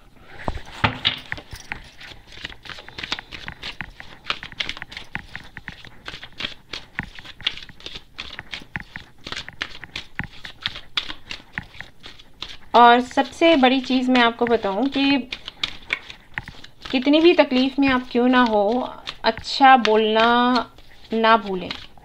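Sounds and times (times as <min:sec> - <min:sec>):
cards being shuffled: 0:00.4 - 0:22.0.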